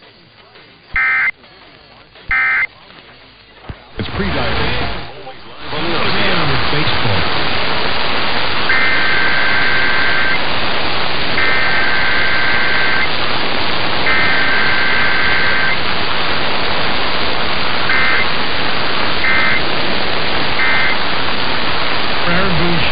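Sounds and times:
radio static: 0:00.0 - 0:22.9
two-tone warbling data bursts: 0:01.0 - 0:01.3, 0:02.3 - 0:02.7, 0:08.6 - 0:10.5, 0:11.2 - 0:13.2, 0:13.9 - 0:22.9.

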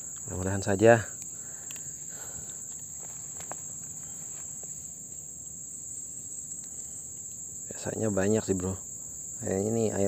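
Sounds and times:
insect chorus drone: 0:00.0 - 0:10.0
faint clicks: 0:01.1 - 0:03.7.

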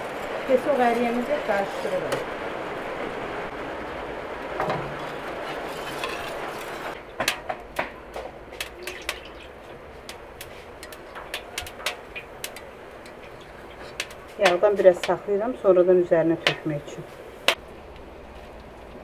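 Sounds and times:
gas burner hissing: 0:04.3 - 0:17.7.

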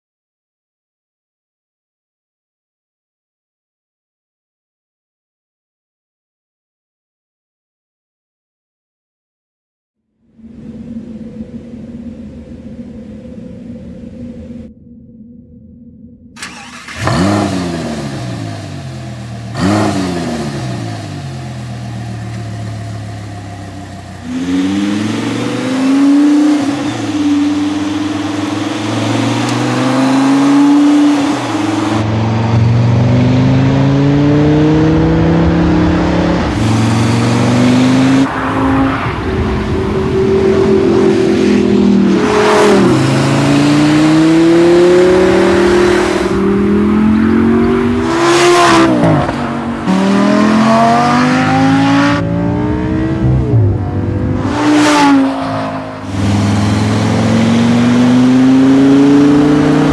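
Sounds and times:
car engine revving and accelerating: 0:16.4 - 0:59.9.

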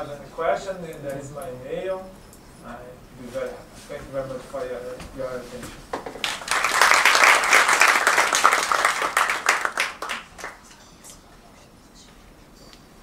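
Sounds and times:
audience applauding: 0:06.2 - 0:10.7.

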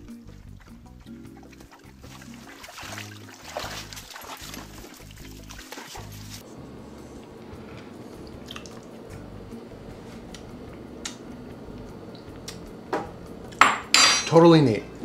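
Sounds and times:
low room hum: 0:06.0 - 0:15.0.

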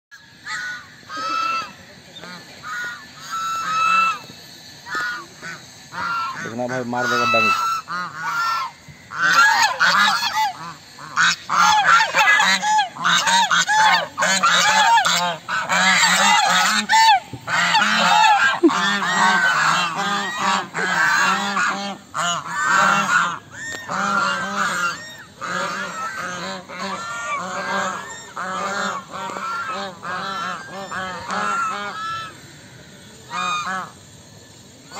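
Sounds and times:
geese honking: 0:00.2 - 0:34.9.

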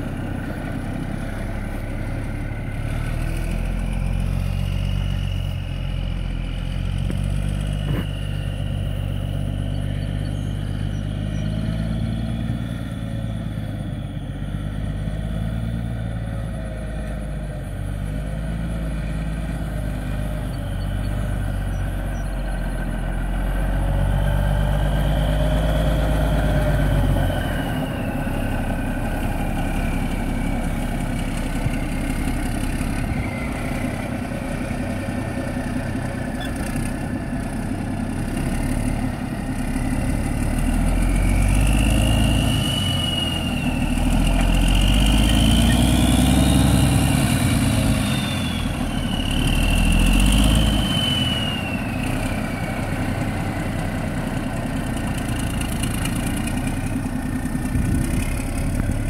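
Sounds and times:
truck diesel engine running: 0:00.0 - 0:59.0.

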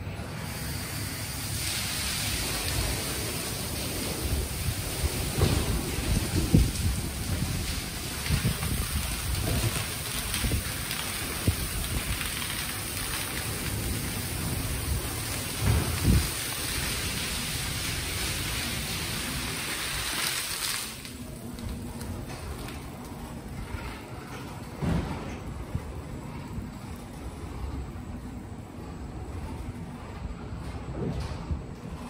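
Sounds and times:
car wash spray hissing: 0:00.0 - 0:24.2.

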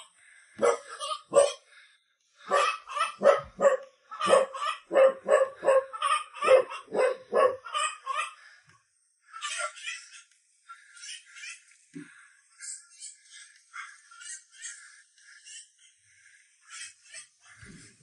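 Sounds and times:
dog barking: 0:00.6 - 0:01.7, 0:02.4 - 0:07.8.

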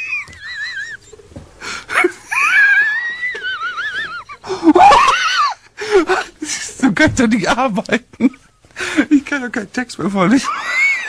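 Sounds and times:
man laughing wheezing: 0:00.0 - 0:06.8.

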